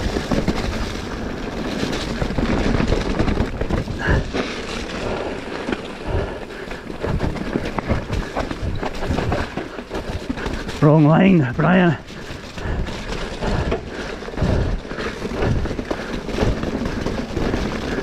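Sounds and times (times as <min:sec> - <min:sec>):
bike rattling and knocking: 0:00.0 - 0:18.0
wind and tyre noise: 0:00.0 - 0:18.0.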